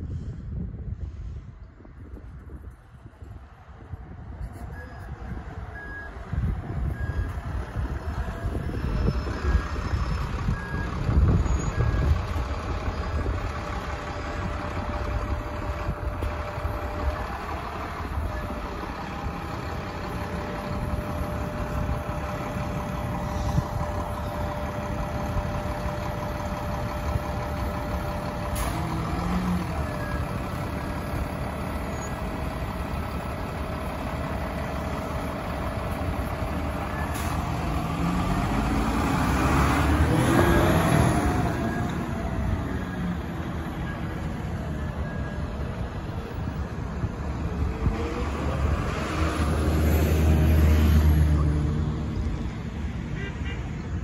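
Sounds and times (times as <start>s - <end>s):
bus diesel engine rumbling: 0.0s - 54.0s
engine whine: 1.5s - 53.0s
short beeps: 4.7s - 6.2s.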